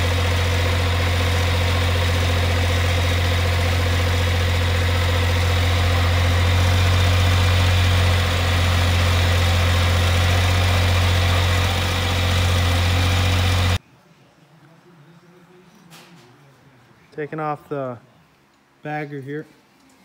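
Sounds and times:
diesel mower engine running: 0.0 - 13.8.

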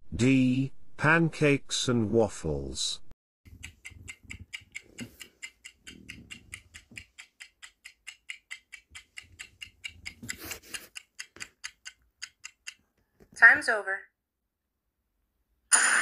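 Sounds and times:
clock ticking: 3.5 - 12.9.

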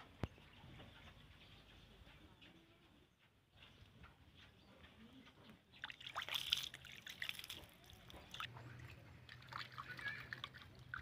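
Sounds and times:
water splashing in plastic basin: 5.8 - 11.0.

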